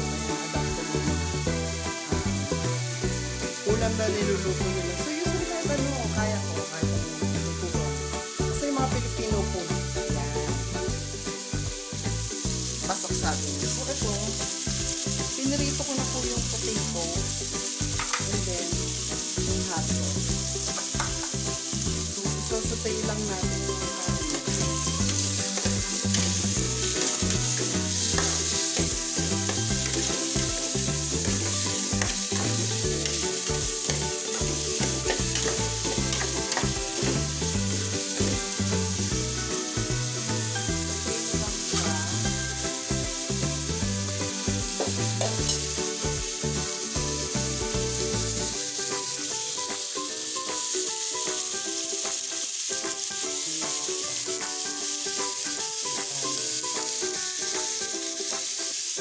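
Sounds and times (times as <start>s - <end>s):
meat sizzling in a pot: 0.0s - 59.0s
utensil scraping a pot: 24.3s - 37.2s.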